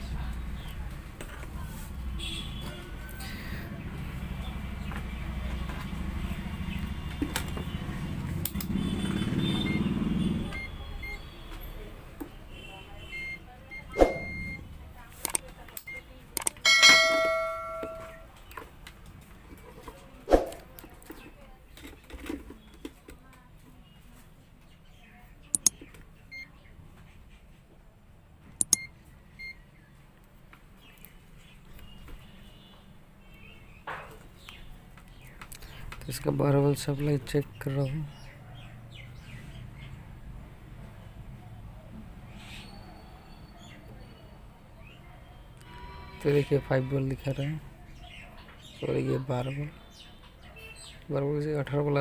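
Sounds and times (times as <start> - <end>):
short high beep: 13.2 - 14.6
sharp clicks: 15.2 - 16.6, 25.5 - 26.0, 28.6 - 28.9
mouse double clicks: 25.5 - 25.8, 28.6 - 28.9.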